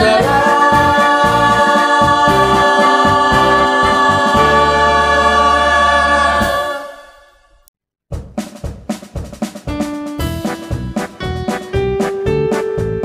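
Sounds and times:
voices singing a held chord: 0:00.0 - 0:07.4.

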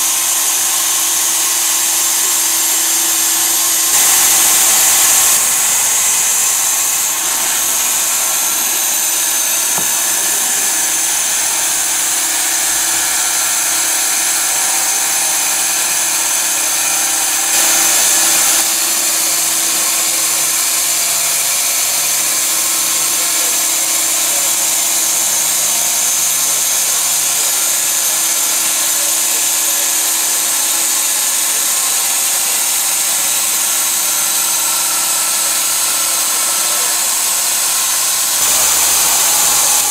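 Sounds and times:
band sawmill running: 0:00.0 - 0:39.9.

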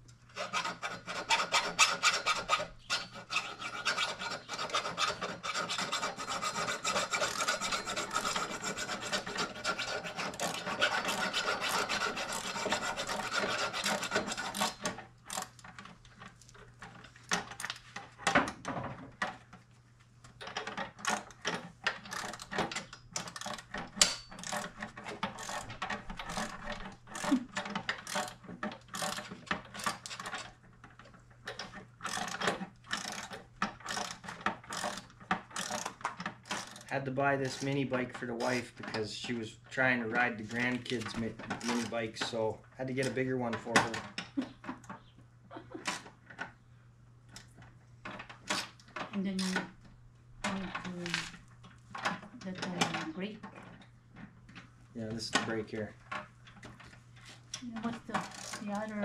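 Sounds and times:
ratchet clicking: 0:33.9 - 0:36.9.

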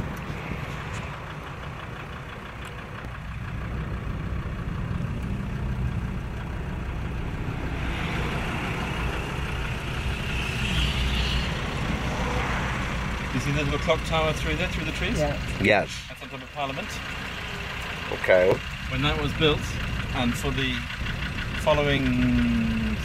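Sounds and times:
wind and tyre hiss: 0:00.0 - 0:03.4
engine and road drone: 0:00.0 - 0:23.0.

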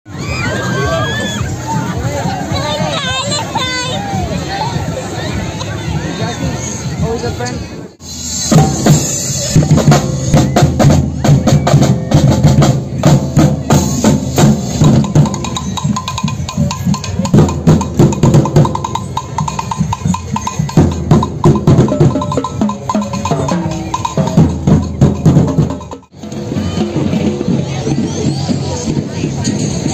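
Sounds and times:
drummers beating drums: 0:08.1 - 0:29.9.

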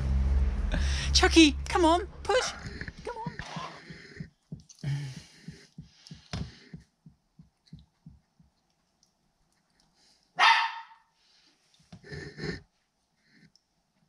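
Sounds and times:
dog barking sharply: 0:10.4 - 0:11.0.

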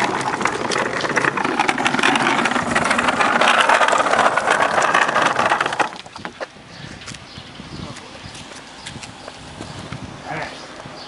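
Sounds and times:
boat hull dragging over ground: 0:00.0 - 0:06.6.

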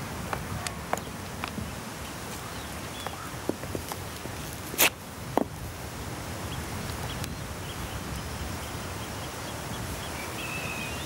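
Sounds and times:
scuffs on stone steps: 0:00.2 - 0:05.6
faint bird chirps: 0:07.1 - 0:11.0.

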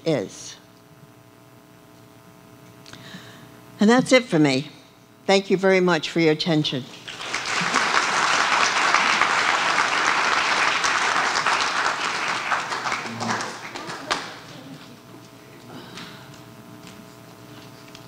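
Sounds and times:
audience applauding: 0:07.0 - 0:14.8.

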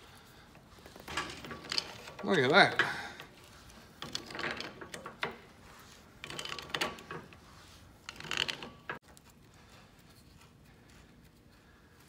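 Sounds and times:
rusty wrench nut grating and creaking: 0:00.9 - 0:07.4, 0:08.0 - 0:09.0.

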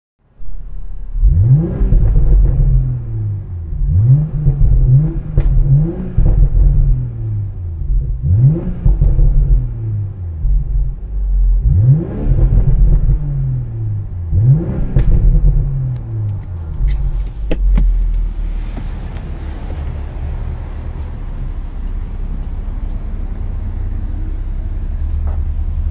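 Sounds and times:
engine idle rumble: 0:00.4 - 0:11.7, 0:12.3 - 0:25.9
car engine revving: 0:00.5 - 0:25.9
exhaust pops: 0:01.2 - 0:20.2.

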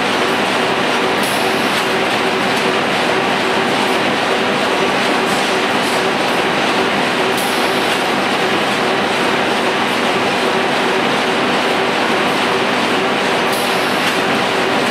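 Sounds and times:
steady machine hum: 0:00.0 - 0:14.9
machine clattering: 0:00.2 - 0:14.9.

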